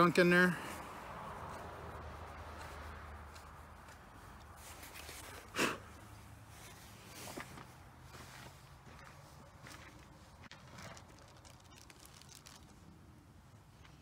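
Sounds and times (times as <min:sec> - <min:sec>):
puff of breath: 0:05.2 - 0:06.0.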